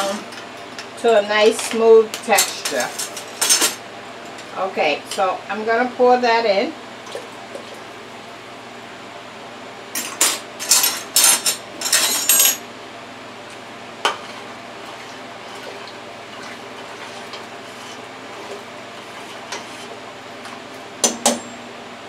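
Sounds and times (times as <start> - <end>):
metal spoon scraping a stockpot: 14.1 - 20.0.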